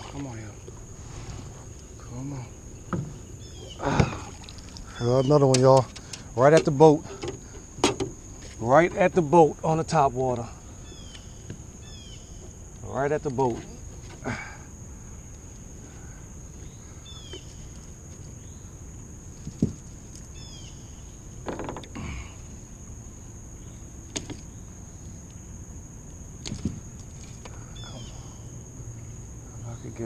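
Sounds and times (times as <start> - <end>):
high insect drone: 0.0 - 30.0
falling bird chirps: 2.6 - 5.6, 16.6 - 18.8, 20.3 - 22.3
knocks and thumps in boat: 2.8 - 4.5, 5.4 - 9.3, 19.4 - 20.1, 21.4 - 22.0, 26.4 - 27.6.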